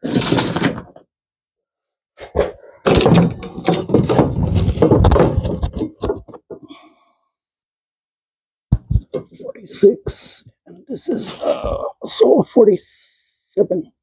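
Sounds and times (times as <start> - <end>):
clatter of knocks and rattles: 2.8 - 6.7.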